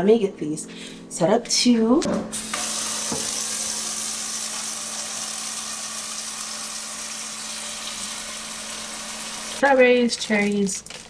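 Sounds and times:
tap water running into bowl: 2.5s - 9.6s.

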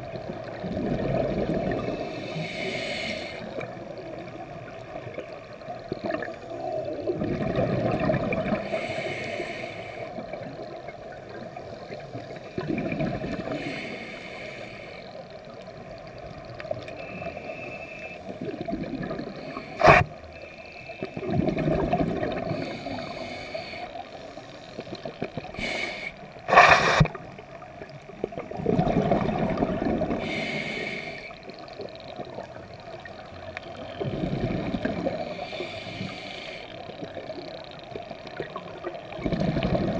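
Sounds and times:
gurgling exhaled bubbles: 0.0s - 2.9s, 3.5s - 9.0s, 12.2s - 13.7s, 18.3s - 20.1s, 21.1s - 23.3s, 26.5s - 30.6s, 33.7s - 35.6s, 36.9s - 39.9s
regulator hissing inhale: 1.8s - 3.8s, 8.6s - 10.3s, 13.4s - 15.4s, 16.9s - 18.4s, 19.3s - 21.2s, 22.4s - 27.2s, 30.2s - 31.6s, 35.2s - 37.0s.

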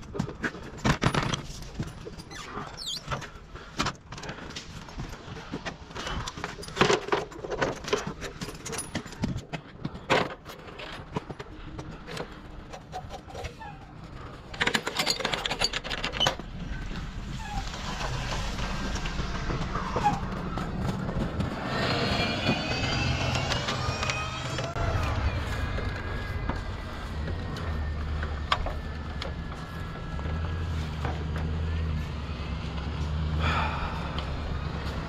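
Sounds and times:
bus engine: 14.0s - 35.0s.

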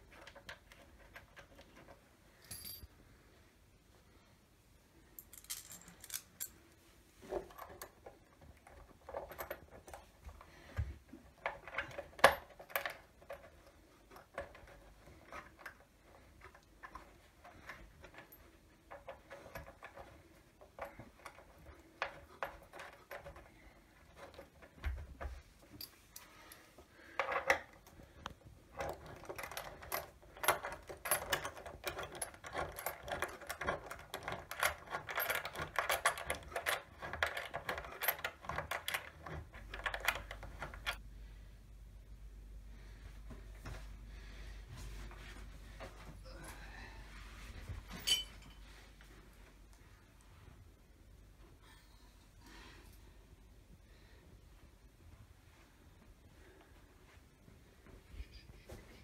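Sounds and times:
fast continuous clicking of hand tool: 28.7s - 40.9s.

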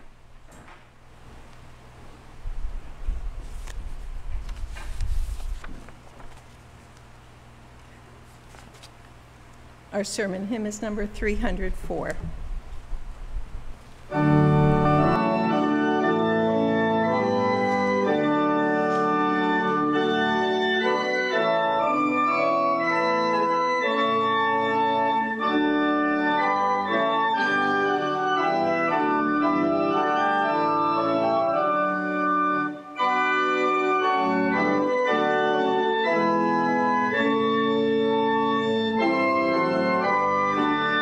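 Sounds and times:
church organ playing a hymn: 14.1s - 41.0s.

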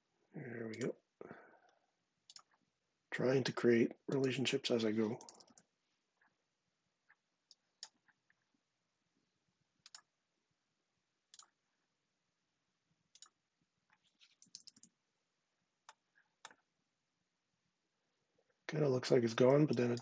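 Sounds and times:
faint computer mouse clicks: 9.8s - 10.1s, 13.2s - 13.4s.

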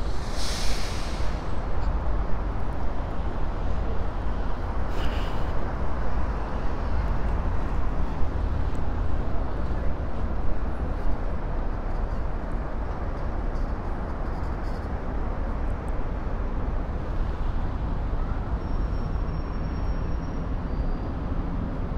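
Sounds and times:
traffic rumble: 0.0s - 21.9s
brief hisses: 0.2s - 1.5s.

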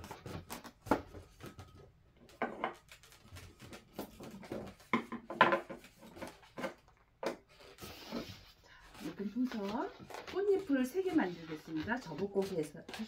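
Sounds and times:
balloons squeaking and rubbing: 7.4s - 13.0s.

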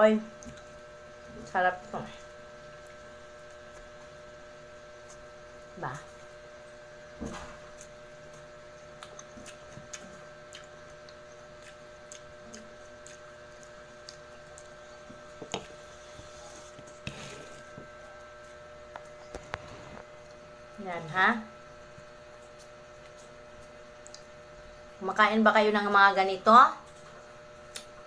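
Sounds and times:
steady electrical hum: 0.0s - 28.0s
sticky clicks and smacks of fruit: 7.3s - 15.7s, 27.7s - 28.0s.

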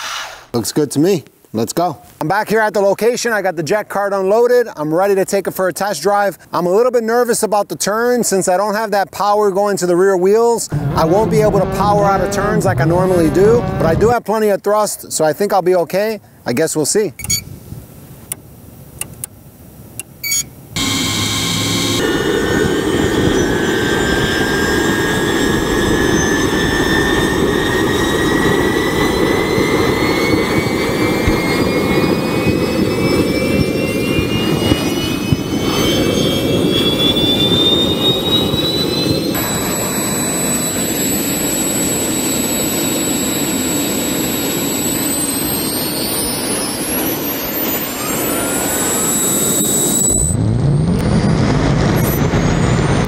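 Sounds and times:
jet engines roaring and whining: 0.0s - 0.6s, 9.8s - 14.2s, 20.7s - 53.0s
clicks: 19.0s - 19.4s.

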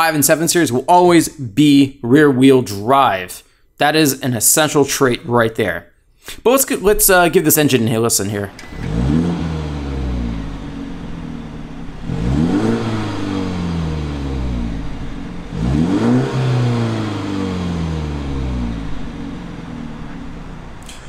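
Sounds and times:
car engine revving: 8.3s - 21.0s.

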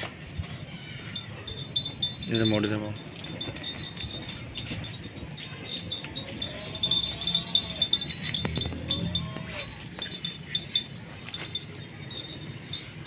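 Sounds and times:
goat bell jingling: 0.0s - 13.0s.

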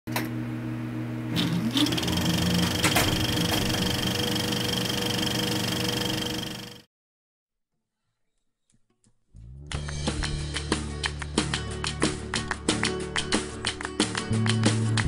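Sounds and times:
film projector whirring clatter: 1.3s - 6.9s.

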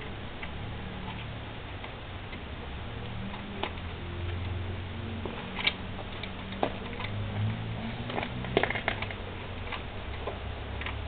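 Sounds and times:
low steady hum: 0.0s - 11.0s
tools and metal parts clicking: 5.2s - 11.0s.

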